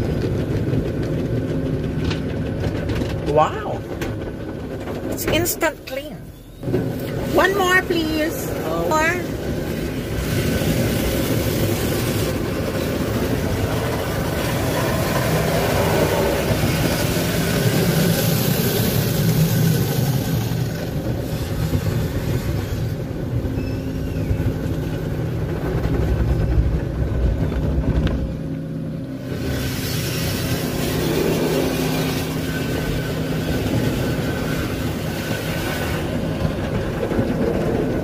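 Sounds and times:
car wash brushes scrubbing: 6.9s - 23.0s.

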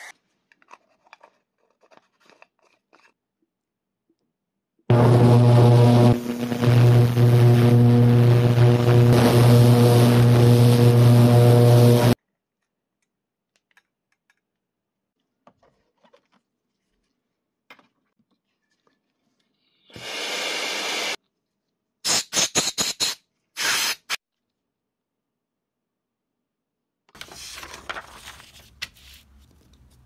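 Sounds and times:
ultrasonic cleaner humming: 4.9s - 12.2s.

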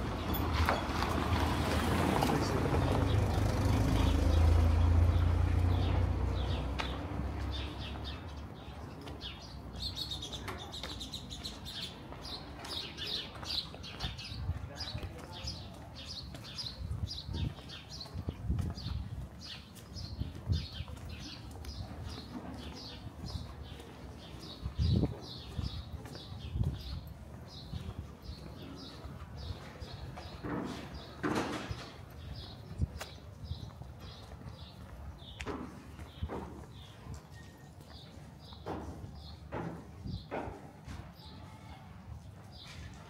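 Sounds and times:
car engine passing by: 0.9s - 7.7s
small birds chirping: 2.4s - 40.4s.

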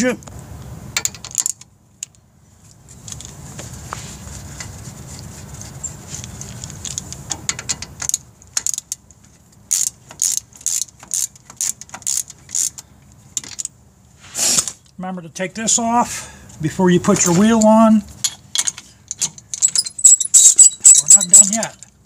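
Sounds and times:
socket ratchet pawl clicks: 9.7s - 12.8s.

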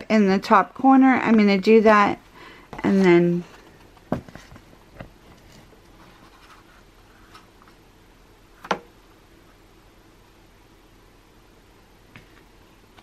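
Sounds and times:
paper rustling and scraping: 4.2s - 7.5s.

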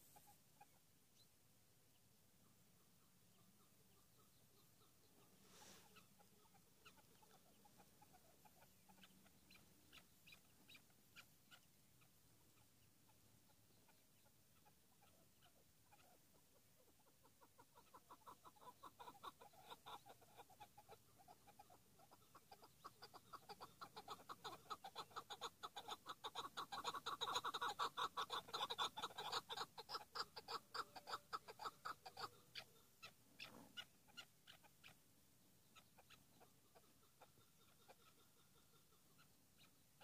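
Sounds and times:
partridge rapid clucking: 14.6s - 35.0s.

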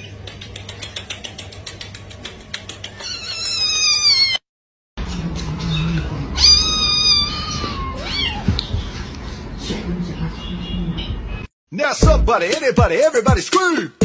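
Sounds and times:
cat meowing: 3.0s - 4.4s, 5.7s - 8.5s
kitten crying: 3.0s - 4.4s, 5.7s - 8.5s.

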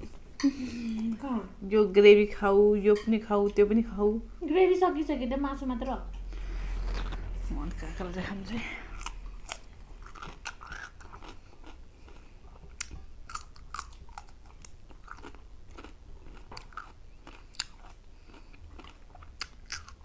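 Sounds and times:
cucumber crunching: 8.9s - 20.0s.

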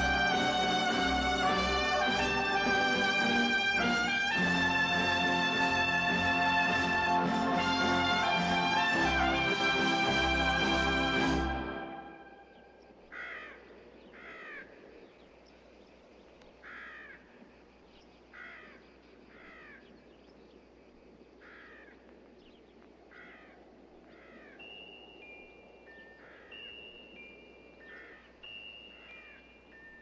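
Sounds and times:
faint open-air hiss: 0.0s - 30.0s
crows cawing: 13.1s - 15.0s, 16.6s - 17.4s, 18.3s - 20.0s, 21.4s - 22.1s, 23.1s - 24.6s, 26.1s - 26.6s, 27.8s - 28.4s.

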